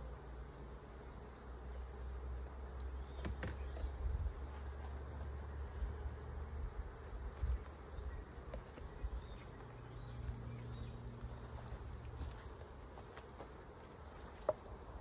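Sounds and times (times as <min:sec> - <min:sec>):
honeybees buzzing: 0:00.0 - 0:15.0
single bee droning: 0:00.0 - 0:15.0.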